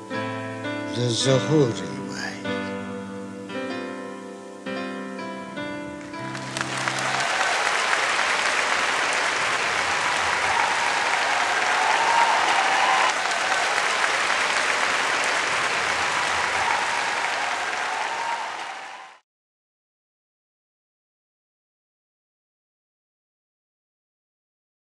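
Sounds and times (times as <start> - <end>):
music: 0.0 - 13.0
audience applauding: 6.0 - 19.2.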